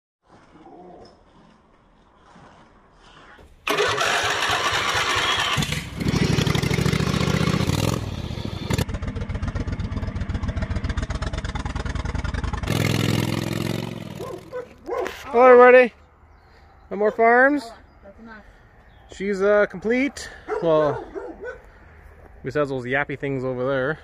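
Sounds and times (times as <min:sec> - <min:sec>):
small mower engine running: 0:03.7 - 0:14.6.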